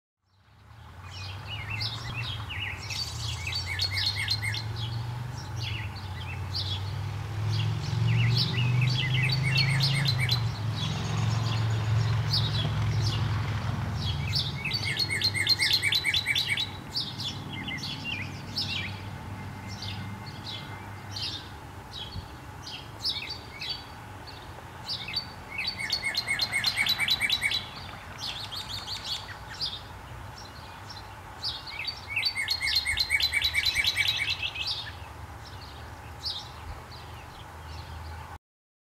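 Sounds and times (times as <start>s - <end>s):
bird singing whistled notes: 1.1s - 5.0s, 8.1s - 10.5s, 14.2s - 19.0s, 25.0s - 29.8s, 31.5s - 35.0s.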